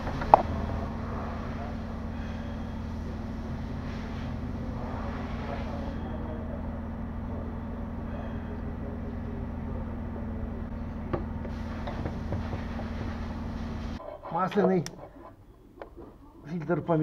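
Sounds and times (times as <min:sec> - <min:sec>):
low mechanical hum: 0:00.0 - 0:17.0
rustling and knocking of hands: 0:11.2 - 0:13.9.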